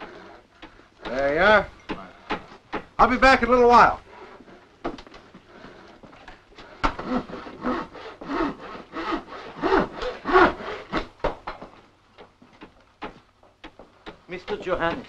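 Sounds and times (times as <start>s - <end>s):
sharp knocks: 0.6s - 3.1s, 9.9s - 15.0s
hand saw cutting wood: 6.7s - 11.1s.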